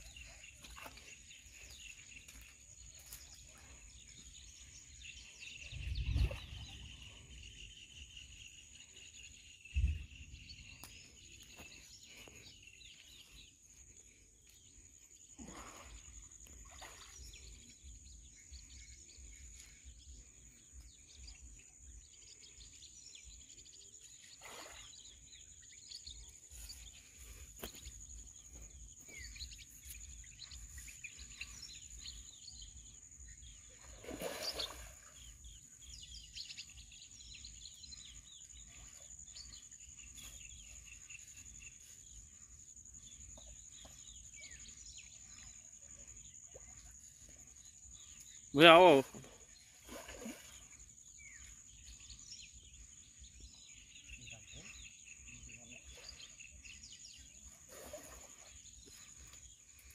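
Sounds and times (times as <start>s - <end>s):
bird chirps: 15.9s - 59.9s.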